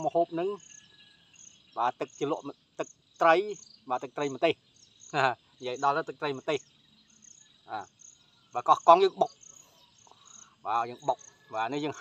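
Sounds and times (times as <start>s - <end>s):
man speaking: 0.0s - 0.6s, 1.8s - 2.5s, 3.2s - 6.6s, 7.7s - 7.9s, 8.6s - 9.4s, 10.7s - 12.0s
crickets chirping: 0.0s - 12.0s
high insect drone: 0.0s - 12.0s.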